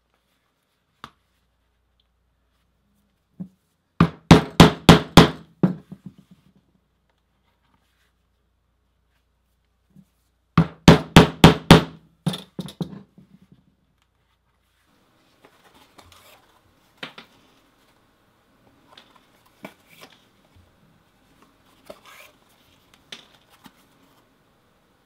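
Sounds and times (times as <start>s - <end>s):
chisel hammered through leather: 4.0s - 5.8s, 10.6s - 12.0s.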